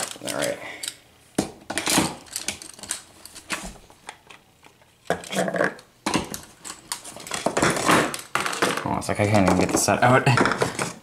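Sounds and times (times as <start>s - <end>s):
plastic cups clattering: 5.1s - 11.0s.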